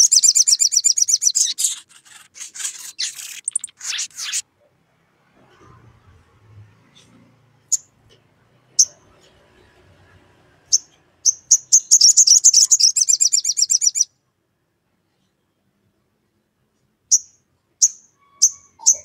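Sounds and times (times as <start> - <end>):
bird chirping and chattering: 0.0 - 4.4, 10.7 - 14.1, 17.1 - 19.0.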